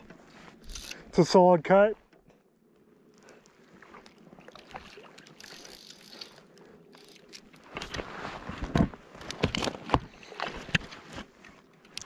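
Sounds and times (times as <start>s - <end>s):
fishing reel drag ratcheting: 0.5s - 1.1s, 4.6s - 7.9s.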